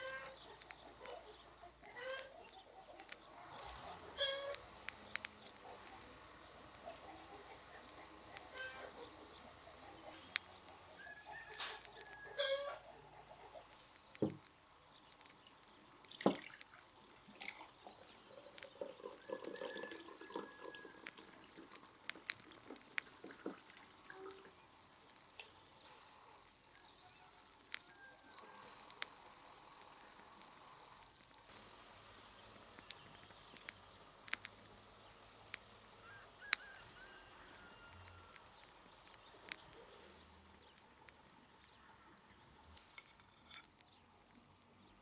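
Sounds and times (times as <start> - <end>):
birds chirping: 0.0 - 45.0
compote pouring into mug: 14.1 - 31.5.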